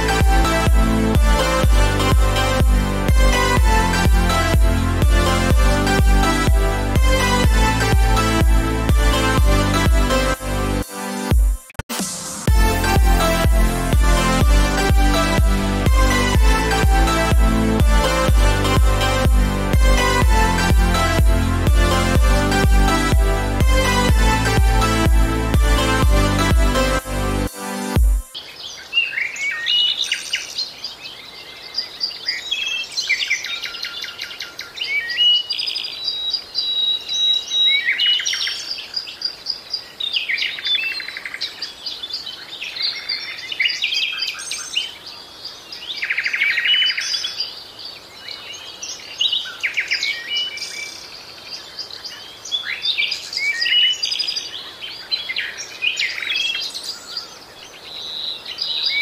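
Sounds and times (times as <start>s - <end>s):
songbirds chirping and trilling: 28.3s - 59.0s.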